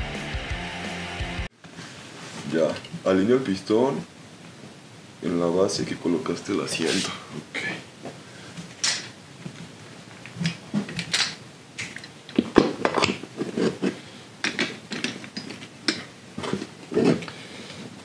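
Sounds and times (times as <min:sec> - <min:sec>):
plastic and metal parts knocking: 0:12.3 - 0:17.3.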